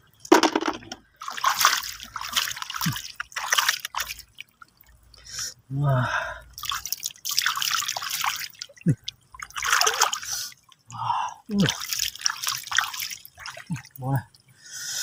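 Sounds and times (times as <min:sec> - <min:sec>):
shallow water splashing: 0:00.6 - 0:05.2, 0:06.5 - 0:10.9, 0:11.5 - 0:14.5.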